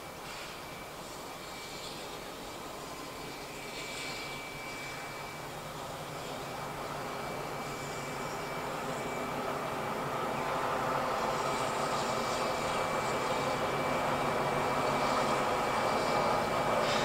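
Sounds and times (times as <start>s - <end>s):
steam locomotive rumbling: 0.0s - 17.0s.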